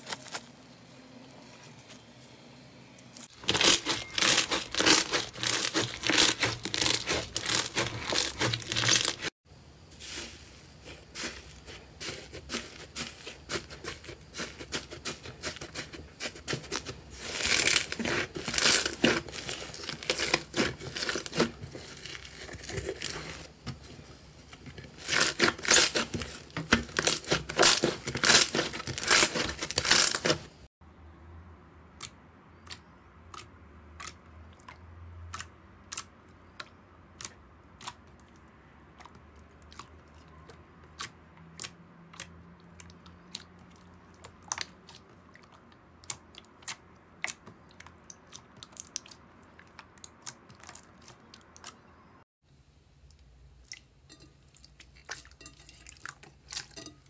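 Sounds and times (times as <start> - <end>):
slime crackling and tearing: 3.3 - 9.3, 12.0 - 23.5, 25.0 - 30.5.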